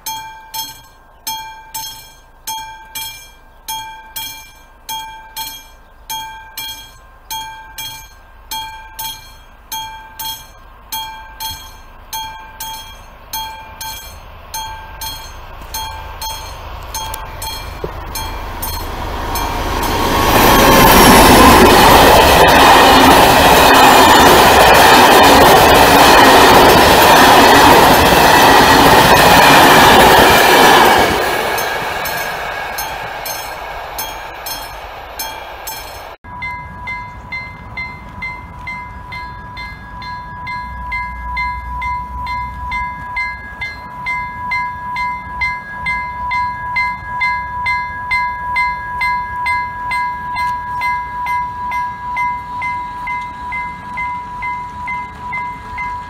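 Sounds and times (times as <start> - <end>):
level crossing warning bell: 0.0 - 56.0
passenger train rushing past: 2.4 - 56.0.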